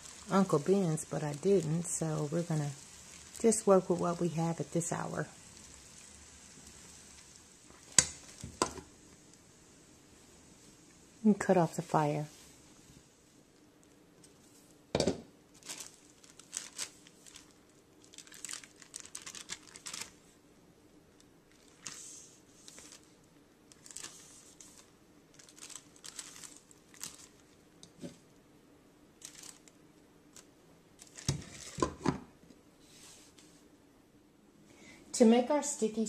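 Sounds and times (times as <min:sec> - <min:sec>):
plastic pouches crinkling: 0:00.0 - 0:08.9, 0:15.5 - 0:20.3, 0:21.5 - 0:27.9, 0:29.2 - 0:31.9.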